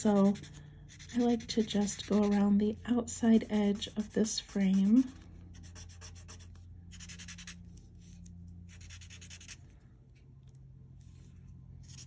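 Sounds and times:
scratchy rubbing on paper: 0:00.0 - 0:02.4, 0:03.4 - 0:07.6.

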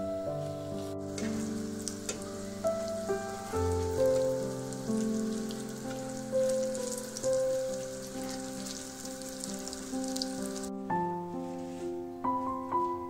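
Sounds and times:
background music with held notes: 0:00.0 - 0:13.0
food sizzling in hot oil: 0:00.8 - 0:10.7.

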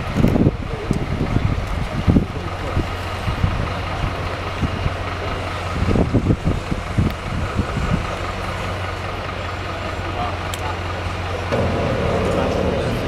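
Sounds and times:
low rumbles: 0:00.0 - 0:13.0
truck engine running: 0:00.0 - 0:13.0.

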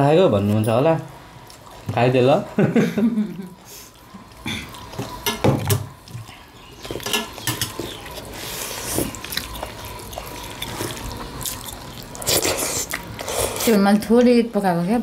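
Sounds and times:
wet chewing: 0:01.4 - 0:01.9, 0:03.5 - 0:14.2.

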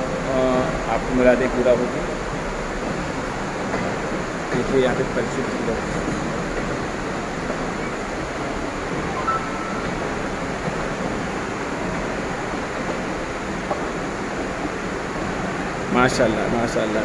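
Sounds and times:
brief thin tone: 0:09.2 - 0:10.2.

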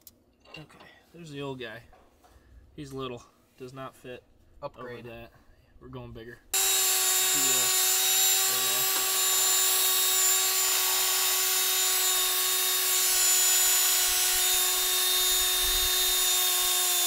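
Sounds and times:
electric motor whining: 0:06.6 - 0:17.0.

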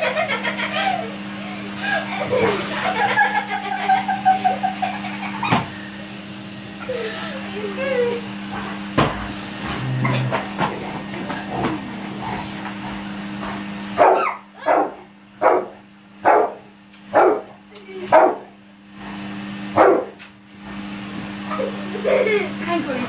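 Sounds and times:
steady hum: 0:00.0 - 0:18.6
dog barking deeply: 0:14.0 - 0:16.6, 0:17.2 - 0:17.5, 0:19.8 - 0:20.2.

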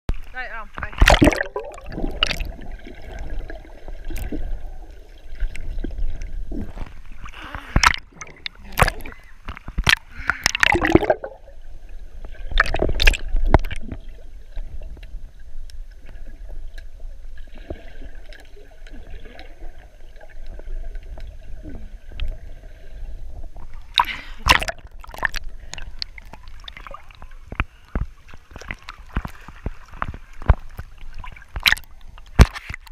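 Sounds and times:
water splashing and sloshing: 0:00.1 - 0:32.9
loud splash: 0:01.0 - 0:02.5.

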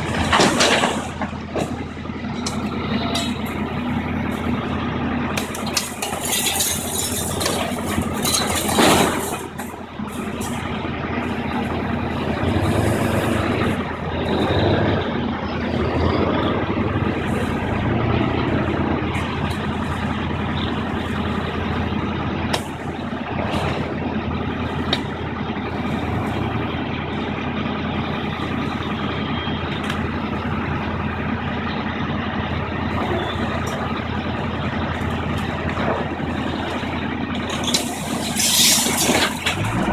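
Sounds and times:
debris knocks and clatter: 0:00.0 - 0:03.6, 0:05.3 - 0:10.7, 0:34.9 - 0:39.9
excavator diesel engine running: 0:00.0 - 0:39.9
debris crashing down: 0:05.4 - 0:09.8.

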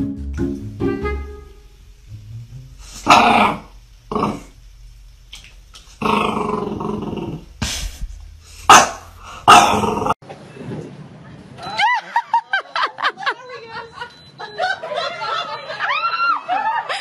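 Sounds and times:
dog growling and barking: 0:03.0 - 0:04.5, 0:06.0 - 0:07.5, 0:08.6 - 0:10.2.

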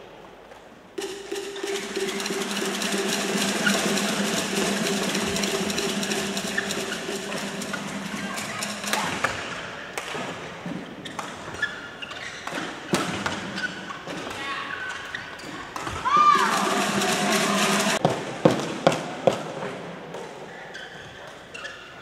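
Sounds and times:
echoing sports hall din: 0:00.0 - 0:22.0
shoes squeaking on court: 0:20.7 - 0:22.0.

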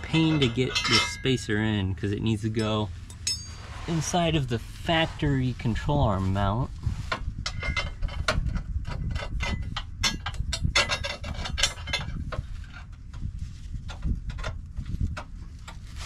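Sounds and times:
metal clicks and scrapes: 0:00.0 - 0:01.5, 0:07.1 - 0:13.3.

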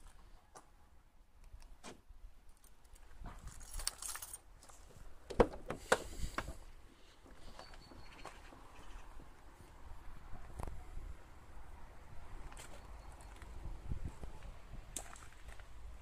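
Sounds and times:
car keys jangling: 0:03.5 - 0:04.4.

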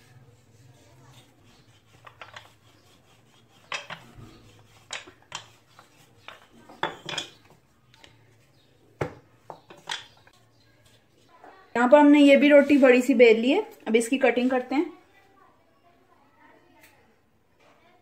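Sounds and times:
rolling pin rubbing dough: 0:00.0 - 0:08.5, 0:12.2 - 0:13.2
wood knocking on counter: 0:09.0 - 0:10.1.

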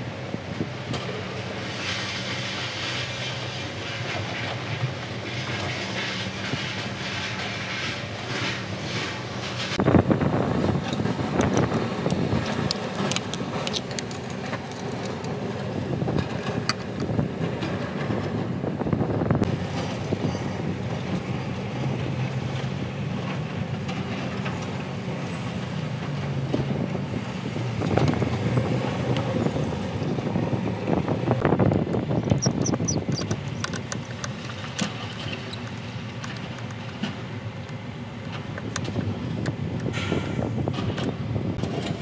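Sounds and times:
engine running: 0:00.0 - 0:42.0
wind on microphone: 0:09.6 - 0:22.3, 0:26.4 - 0:37.1, 0:38.4 - 0:42.0
hand tools clicking on metal: 0:10.9 - 0:15.4, 0:31.6 - 0:39.5.

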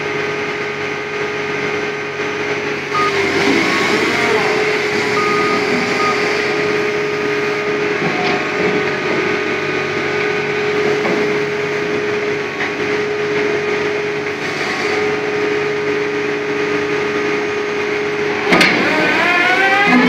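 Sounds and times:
drilling rig humming: 0:00.0 - 0:15.4.

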